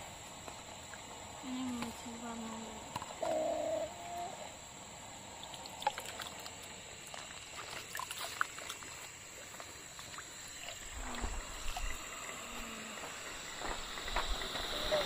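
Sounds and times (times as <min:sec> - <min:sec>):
juice pouring trickle: 0:05.1 - 0:15.0.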